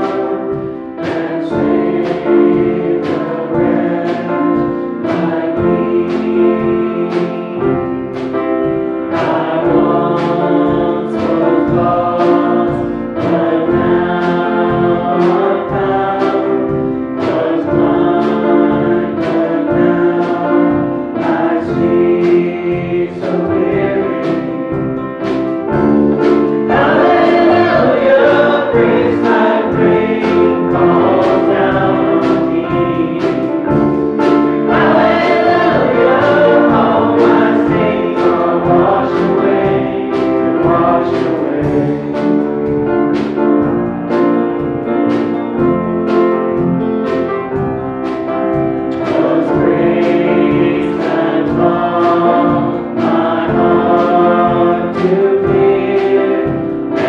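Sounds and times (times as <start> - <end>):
man singing: 0.0 - 25.2, 26.5 - 33.7, 34.6 - 42.5, 49.1 - 57.0
guitar: 0.0 - 50.9
drum kit beat: 0.0 - 57.0.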